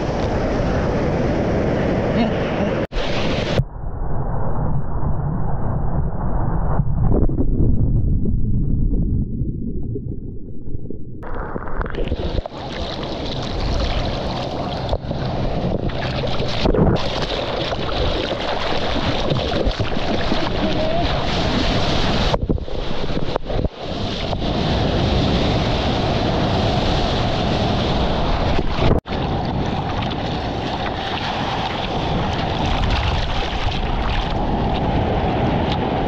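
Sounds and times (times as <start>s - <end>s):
ocean surf: 0.0s - 3.6s, 12.0s - 19.2s, 19.9s - 36.0s
wind on microphone: 0.0s - 36.0s.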